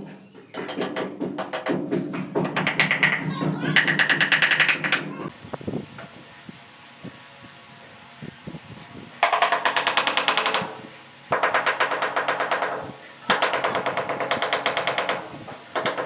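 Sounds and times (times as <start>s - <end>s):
wooden handle knocking on tile: 0.6s - 5.1s.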